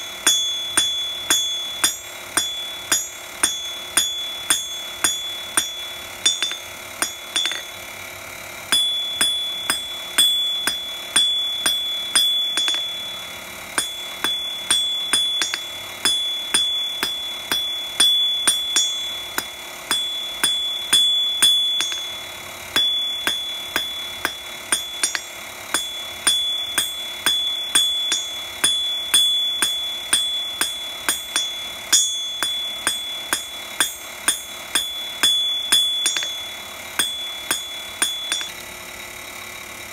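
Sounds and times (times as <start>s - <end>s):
hammer striking metal on anvil: 0.0s - 8.1s, 8.7s - 38.6s
anvil ringing: 0.0s - 38.7s.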